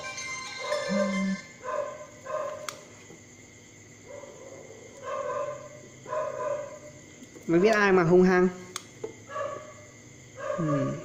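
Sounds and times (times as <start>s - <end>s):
steady electric hum: 0.0s - 11.0s
dog barking: 1.6s - 2.7s, 4.0s - 6.9s, 9.3s - 9.8s, 10.4s - 11.0s.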